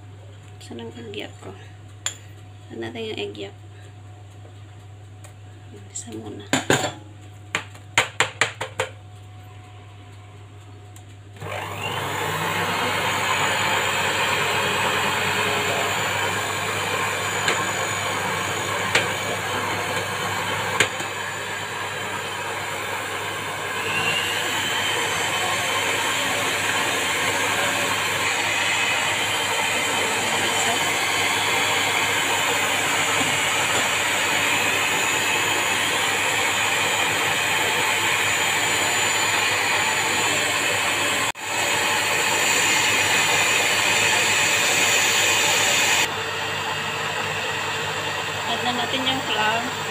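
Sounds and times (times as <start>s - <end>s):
stand mixer running: 11.4s - 49.9s.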